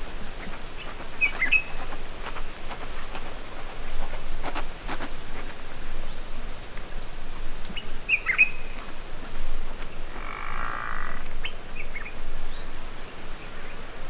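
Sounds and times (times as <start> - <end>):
steady hiss: 0.0 - 14.0
rasping croak-like call: 10.1 - 11.3.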